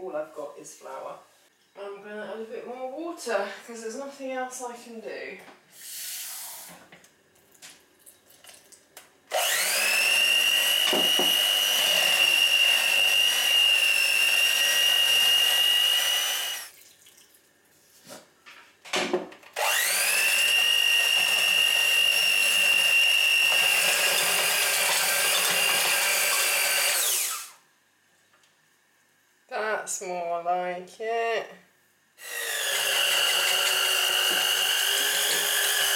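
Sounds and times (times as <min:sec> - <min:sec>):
electric hand mixer whining: 0:09.3 - 0:16.7, 0:19.6 - 0:27.6, 0:32.2 - 0:35.9.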